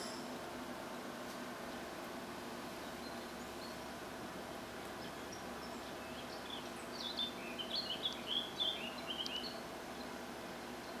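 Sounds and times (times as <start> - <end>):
low background hum: 0.0 - 11.0
songbird twittering: 2.8 - 3.9, 5.0 - 11.0.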